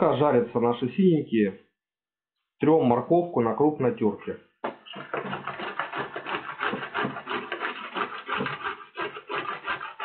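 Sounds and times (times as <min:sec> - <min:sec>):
carrot rasping on grater: 0:04.9 - 0:10.0.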